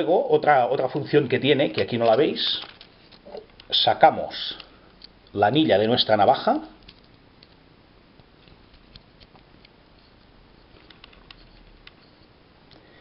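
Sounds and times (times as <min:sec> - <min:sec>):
small clicks and scratches: 0:08.2 - 0:12.3.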